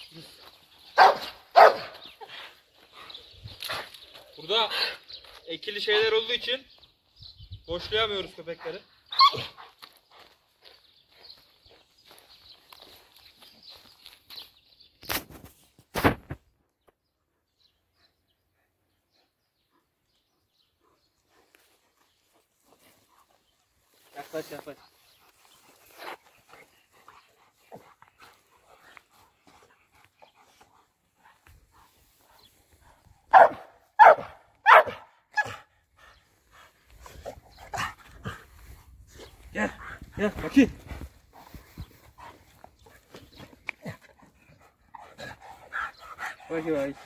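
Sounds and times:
small birds chirping: 0.0 - 47.0
dog barking: 1.0 - 2.0, 33.3 - 35.7.

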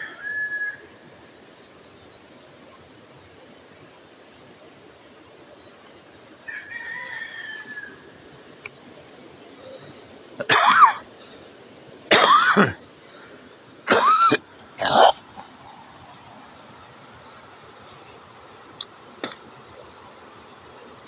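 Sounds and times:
person coughing: 10.4 - 11.0, 12.1 - 12.8, 13.9 - 15.2.

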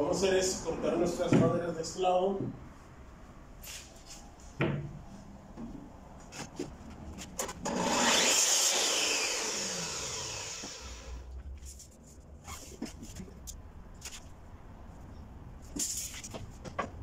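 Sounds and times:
miter saw cutting wood: 7.6 - 11.2.

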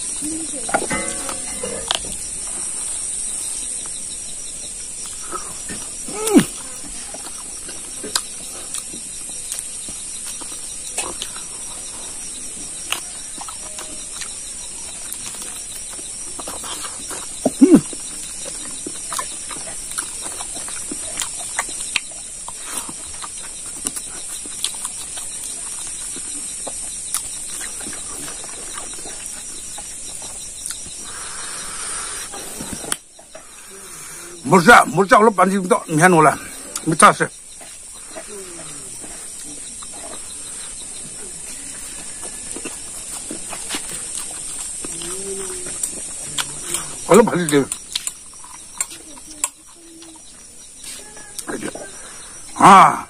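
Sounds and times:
high-pitched insect drone: 0.0 - 53.0
person chewing and lip-smacking: 5.0 - 12.0, 12.7 - 31.1, 41.4 - 47.1, 47.7 - 52.5.

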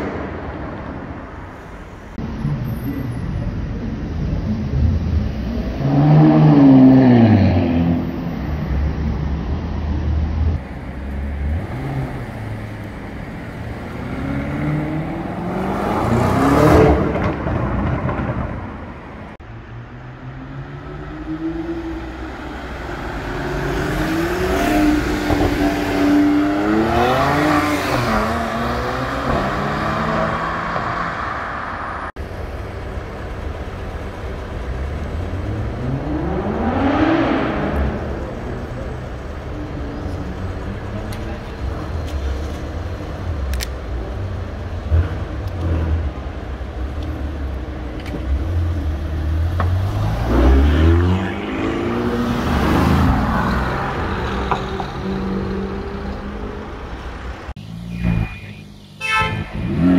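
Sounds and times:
supercar engines accelerating: 19.9 - 57.5.

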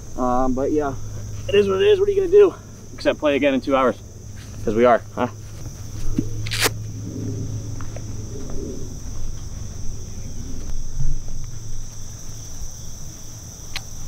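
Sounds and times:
crickets chirring: 0.0 - 14.0
faint low hum: 0.0 - 14.0
small ticks: 13.6 - 14.0.

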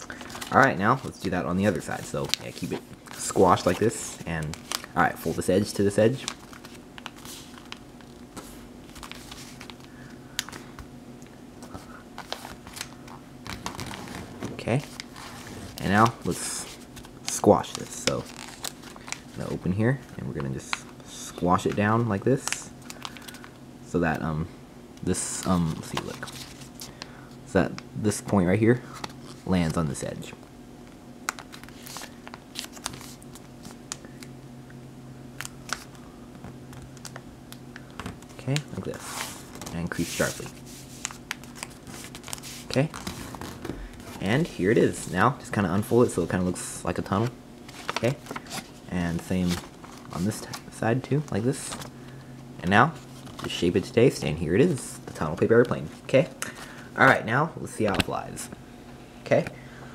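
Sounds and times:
faint hum: 0.0 - 59.9
paper rustling while folded: 0.1 - 10.7, 11.6 - 20.9, 25.3 - 27.0, 31.3 - 33.8, 38.0 - 45.1, 47.1 - 51.9.

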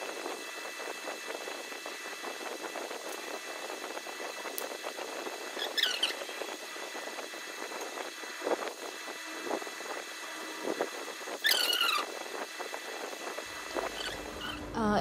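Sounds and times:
high warbling squeak: 13.7 - 14.8.

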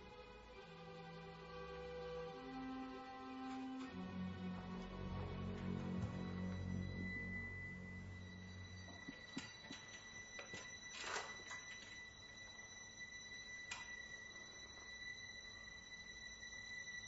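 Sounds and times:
low background music: 0.0 - 17.0
high-pitched electrical whine: 6.0 - 17.0.

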